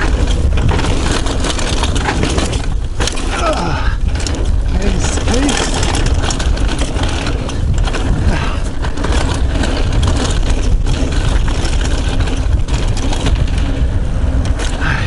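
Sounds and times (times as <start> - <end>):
bike rattling over bumps: 0.0 - 15.0
tyres rolling on dirt: 0.0 - 15.0
wind rumble on microphone: 0.0 - 15.0.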